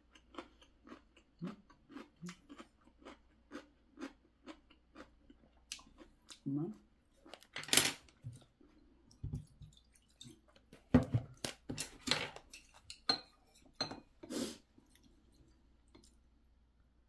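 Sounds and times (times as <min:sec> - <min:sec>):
chewing: 0:00.0 - 0:06.5.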